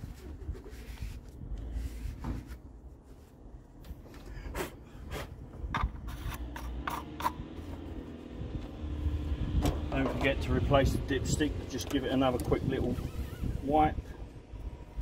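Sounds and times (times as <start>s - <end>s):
paper towel rustling and rubbing: 0.0s - 3.4s.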